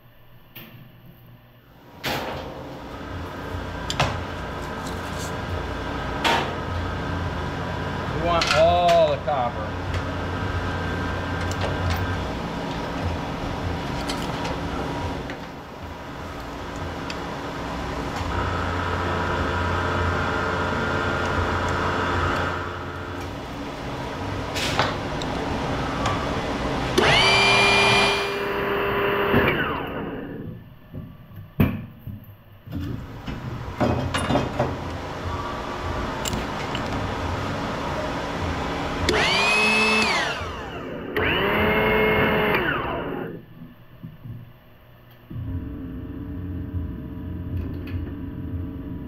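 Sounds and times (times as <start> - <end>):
machine noise: 1.8 - 30.8, 32.7 - 43.5
power tool motor whine: 26.9 - 30.5, 38.9 - 43.4.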